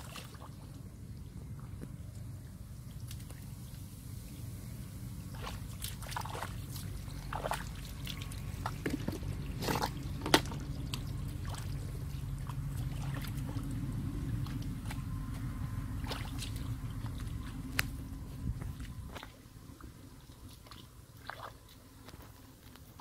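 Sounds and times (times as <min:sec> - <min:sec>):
short wet splashes: 0:00.0 - 0:00.8, 0:02.9 - 0:03.8, 0:05.2 - 0:18.0, 0:18.6 - 0:19.4, 0:20.2 - 0:21.9
hands squelching through watery mud: 0:00.0 - 0:03.8, 0:05.2 - 0:23.0.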